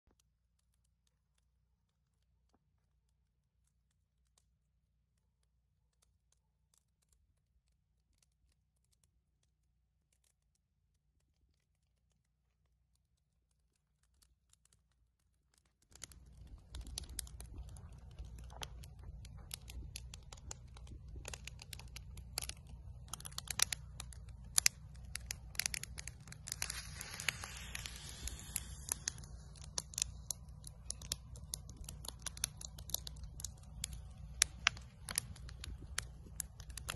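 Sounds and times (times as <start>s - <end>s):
campfire crackling and popping: 0.0s - 36.9s
hissing: 16.0s - 36.9s
low rumble: 16.0s - 36.9s.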